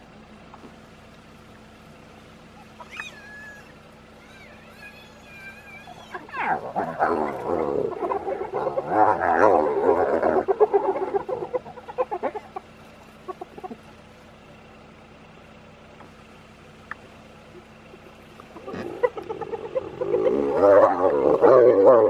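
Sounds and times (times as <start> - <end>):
hyenas giggling: 2.5 - 13.9, 17.4 - 22.0.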